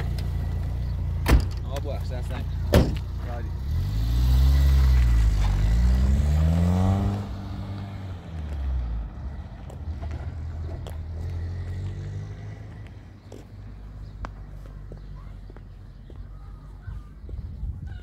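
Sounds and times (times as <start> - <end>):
vehicle engine revving: 2.3 - 13.4.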